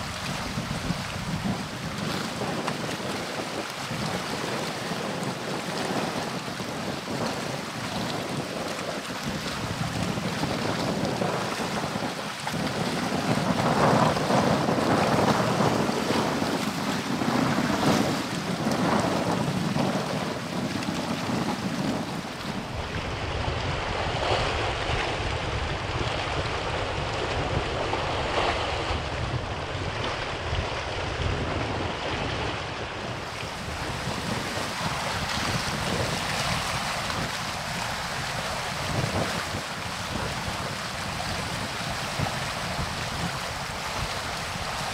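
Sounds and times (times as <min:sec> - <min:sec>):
wind buffeting the microphone: 0:00.0 - 0:44.9
water washing: 0:31.3 - 0:44.9.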